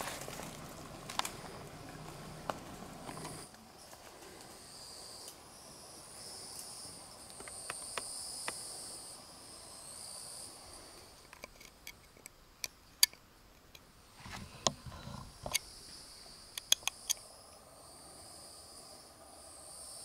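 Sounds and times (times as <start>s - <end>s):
insects trilling: 0.0s - 13.2s, 14.0s - 20.0s
sharp clicks: 16.5s - 17.2s.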